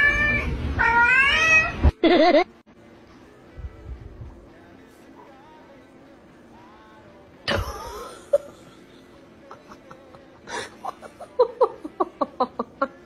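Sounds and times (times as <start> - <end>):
person laughing: 2.0 - 2.5, 7.5 - 13.0.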